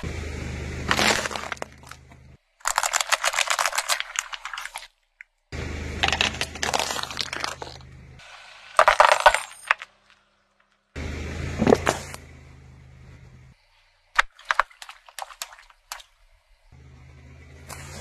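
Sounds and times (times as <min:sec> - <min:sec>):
car engine idling: 0:00.0 - 0:02.4, 0:05.5 - 0:08.3, 0:10.9 - 0:13.6, 0:16.5 - 0:18.0
tyre crushing items crunch: 0:00.9 - 0:04.9, 0:06.0 - 0:08.0, 0:08.8 - 0:10.2.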